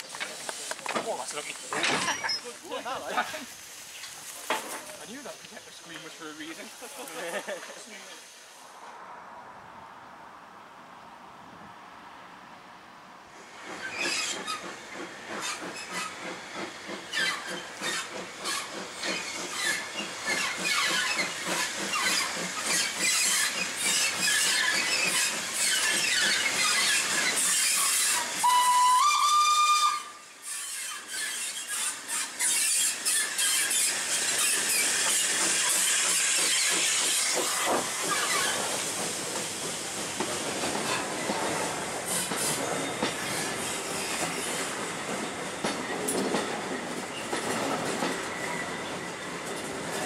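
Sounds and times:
steam locomotive chuffing: 0:00.0 - 0:08.6, 0:13.4 - 0:50.0
steam whistle blast: 0:27.8 - 0:30.7.

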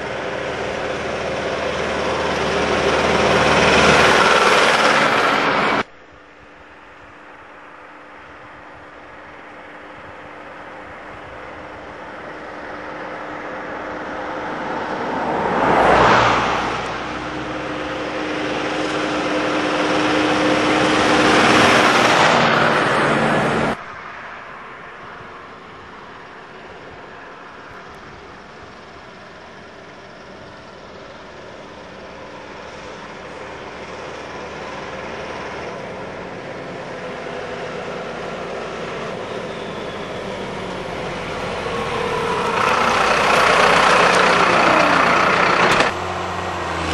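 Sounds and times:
car passing by: 0:00.0 - 0:05.9, 0:11.4 - 0:26.5, 0:32.6 - 0:46.9
engine building up: 0:00.0 - 0:05.9, 0:06.5 - 0:46.9
vehicle passing fast: 0:00.0 - 0:05.9, 0:09.9 - 0:25.3, 0:32.6 - 0:46.9
tractor diesel engine approaching: 0:00.0 - 0:46.9.

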